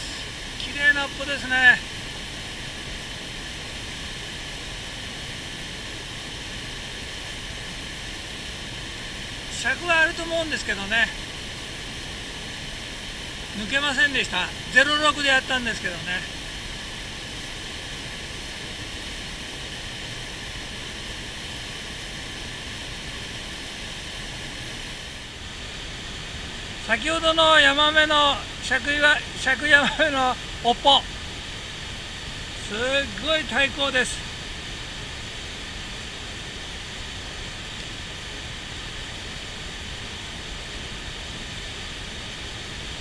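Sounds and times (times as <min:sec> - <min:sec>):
river rushing: 0:00.0 - 0:43.0.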